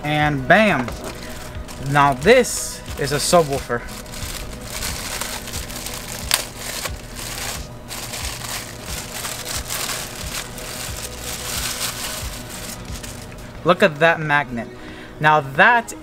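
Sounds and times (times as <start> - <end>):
packaging crinkling: 0.9 - 13.5.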